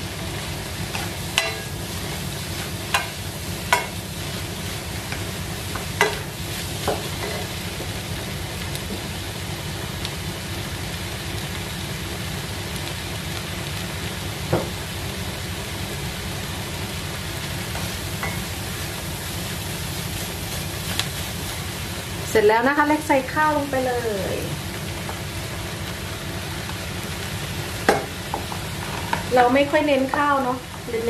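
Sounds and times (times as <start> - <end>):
vegetables sizzling in a frying pan: 0.0 - 31.0.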